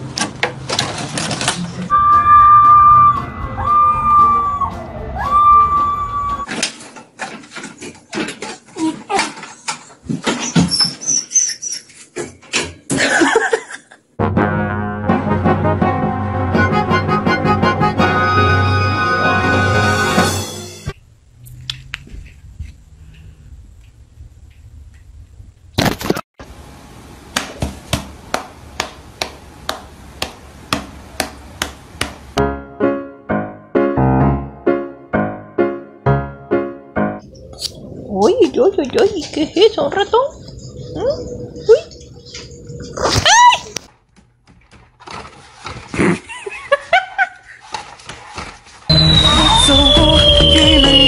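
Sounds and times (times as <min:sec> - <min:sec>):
hand slapping: 0:27.4 - 0:32.2.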